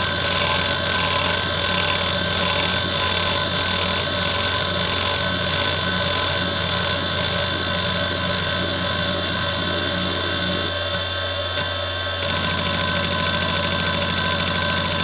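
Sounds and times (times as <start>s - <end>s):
hard drive head seeking chatter: 0.0s - 11.0s
hard drive spindle whine: 0.0s - 15.0s.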